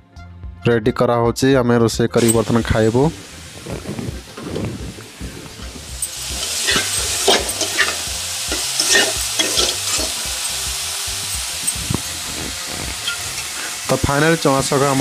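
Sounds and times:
greens sizzling in a pan: 0:02.2 - 0:15.0
metal spatula scraping pan: 0:06.1 - 0:10.2, 0:12.9 - 0:13.6.

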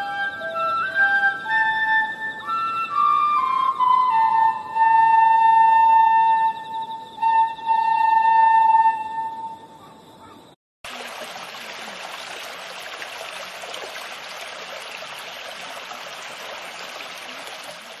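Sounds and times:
flute and ocarina duet: 0:00.0 - 0:09.8
water running over stone weir: 0:10.8 - 0:18.0.

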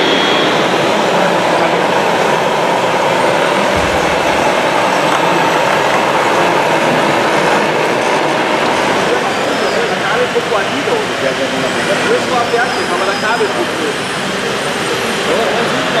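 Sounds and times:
model trucks running: 0:00.0 - 0:16.0
low thump: 0:03.7 - 0:05.2.

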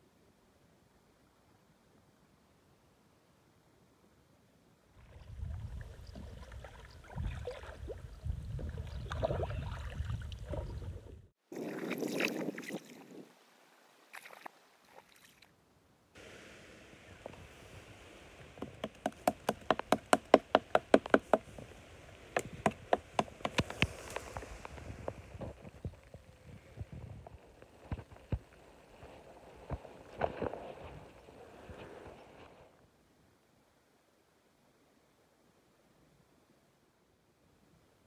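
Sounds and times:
light water sounds: 0:04.9 - 0:15.6, 0:16.2 - 0:19.3, 0:21.4 - 0:32.6
low wind rumble: 0:05.0 - 0:11.3, 0:21.0 - 0:32.4
knife chopping wood: 0:18.6 - 0:21.5.

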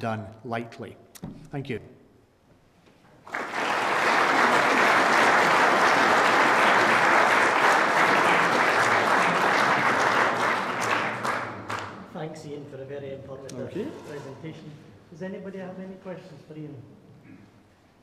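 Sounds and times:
audience applauding: 0:03.2 - 0:12.1.

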